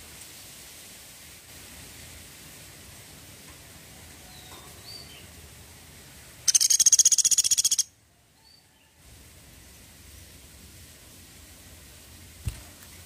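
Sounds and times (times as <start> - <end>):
woodpecker rattling trill: 6.5 - 7.9
faint high chirps: 6.5 - 9.0.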